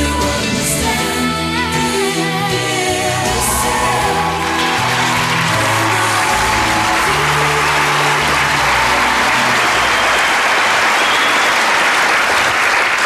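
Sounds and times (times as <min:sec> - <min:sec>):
background music: 0:00.0 - 0:11.3
audience applauding: 0:03.2 - 0:13.0.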